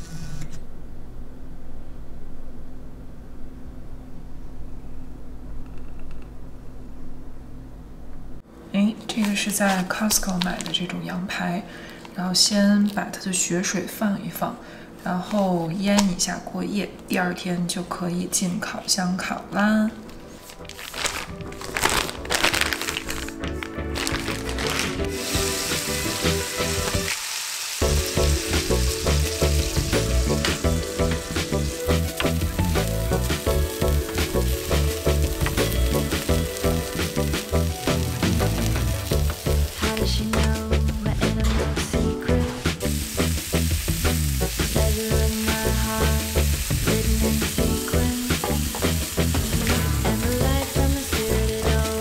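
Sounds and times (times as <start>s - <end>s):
background music: 19.8s - 27.2s, 27.8s - 52.0s
meat sizzling: 20.8s - 41.1s, 42.4s - 52.0s.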